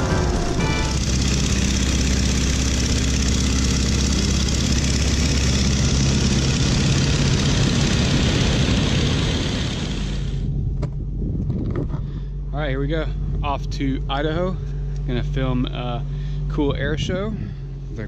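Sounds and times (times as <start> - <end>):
radial airplane engine: 0.0 - 10.8.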